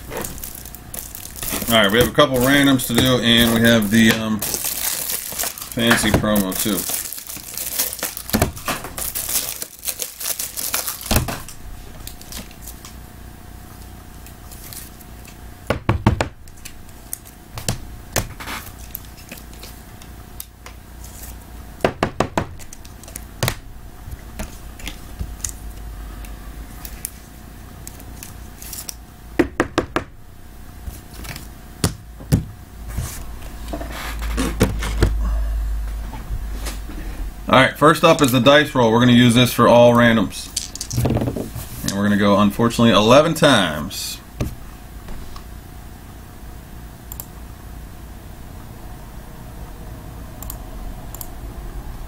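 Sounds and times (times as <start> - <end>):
plastic sleeve crinkling: 0.0 - 12.9
plastic cards clicking and tapping: 1.0 - 9.6
low rumble: 33.2 - 37.5.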